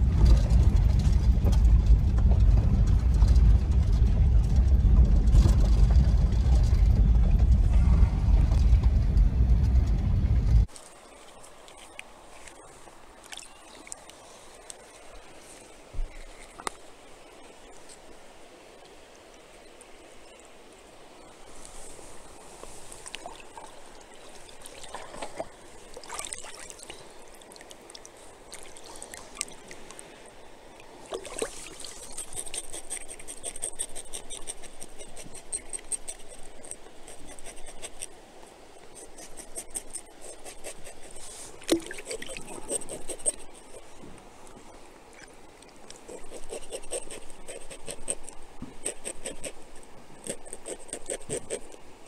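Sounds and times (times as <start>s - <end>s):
creek water trickling: 10.7s - 52.0s
knife scraping fish: 32.1s - 38.1s, 39.0s - 41.3s, 46.1s - 49.6s.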